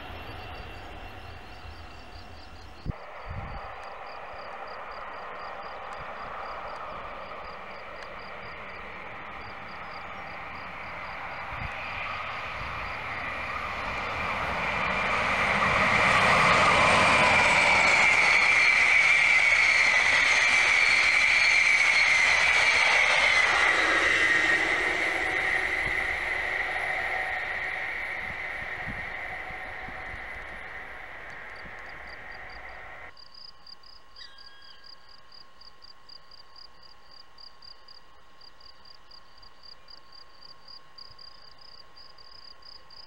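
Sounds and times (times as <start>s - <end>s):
passenger train passing: 0.0s - 33.1s.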